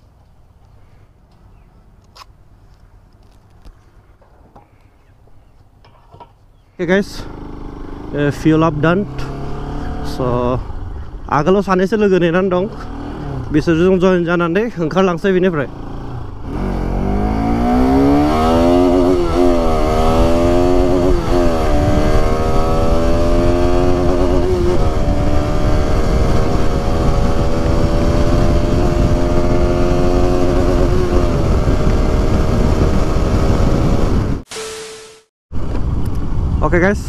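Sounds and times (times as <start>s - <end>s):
motorcycle engine accelerating: 7.0s - 11.5s, 12.1s - 14.1s, 15.3s - 36.5s
wind noise on microphone: 16.0s - 34.5s, 35.5s - 37.0s.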